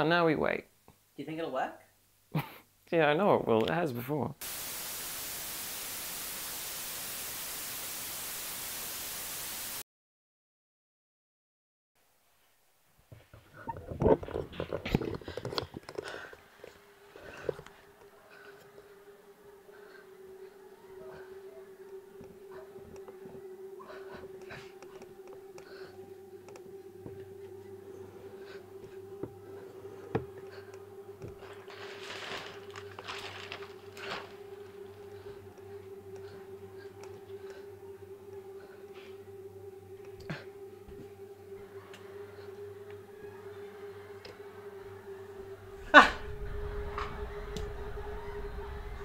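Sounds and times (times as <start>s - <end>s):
low hum: 13.6s - 49.0s
rustling: 30.5s - 35.6s.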